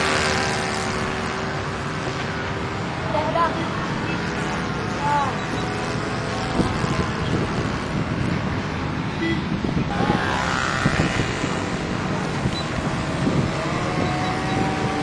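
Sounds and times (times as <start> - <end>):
wind rumble on microphone: 5.3 - 15.0
model aeroplane engine droning: 9.9 - 15.0.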